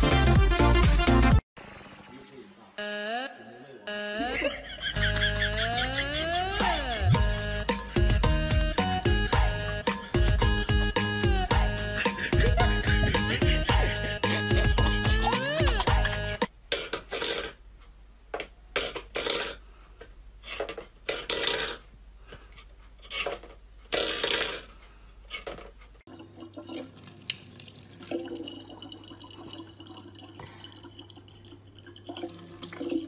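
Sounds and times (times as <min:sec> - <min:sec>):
tap water trickling into bottle: 0:26.1 - 0:33.0.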